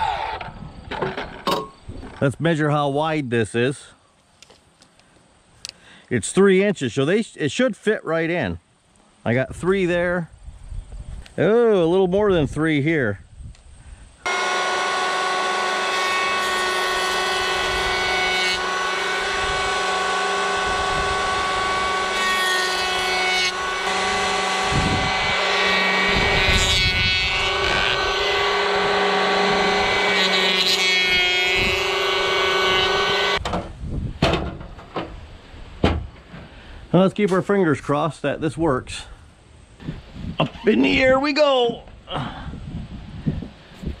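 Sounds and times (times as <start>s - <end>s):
electric hand planer whining: 14.3s - 33.4s.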